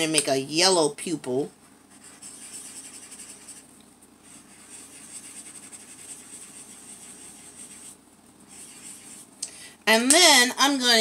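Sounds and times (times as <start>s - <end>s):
felt-tip marker scratching on paper: 1.8s - 3.6s, 4.2s - 9.3s.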